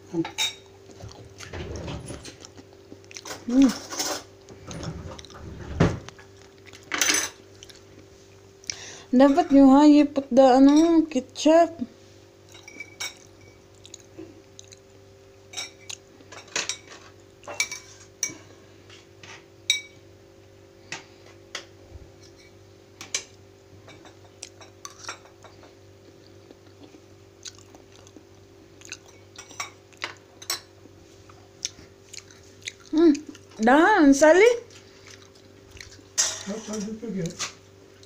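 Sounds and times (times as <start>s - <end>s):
cutlery clinking on plates: 6.9s - 7.4s, 15.5s - 18.4s, 36.2s - 37.5s.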